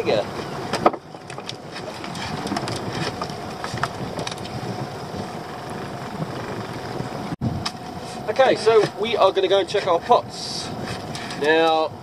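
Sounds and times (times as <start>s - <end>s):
sea noise: 0.0s - 12.0s
wind: 0.0s - 12.0s
fishing rod clicks and knocks: 0.8s - 4.6s.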